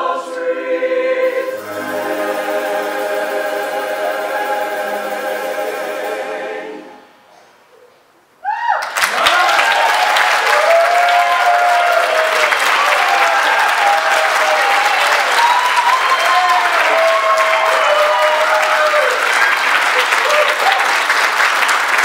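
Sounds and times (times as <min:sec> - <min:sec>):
audience cheering: 0:08.4 - 0:22.0
audience applause: 0:08.8 - 0:22.0.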